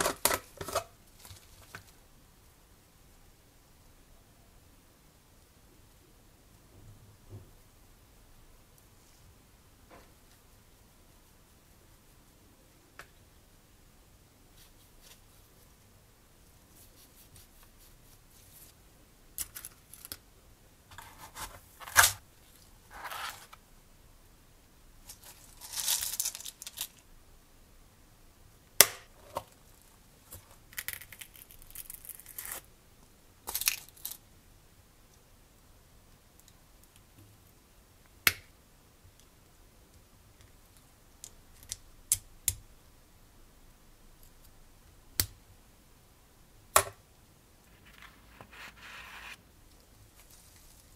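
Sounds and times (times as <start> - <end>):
plastic packaging rustling: 25.1 - 27.0.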